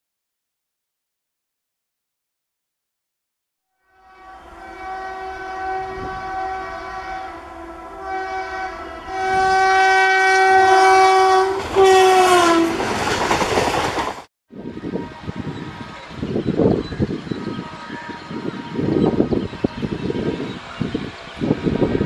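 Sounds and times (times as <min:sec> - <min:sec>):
locomotive horn blasts: 0:03.7 - 0:12.8, 0:14.6 - 0:22.0
train coaches rushing by: 0:10.2 - 0:14.3.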